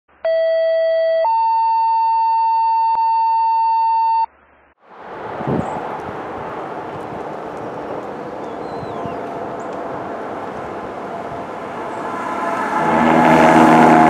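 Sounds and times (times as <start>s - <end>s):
fire engine passing: 4.8s - 14.0s.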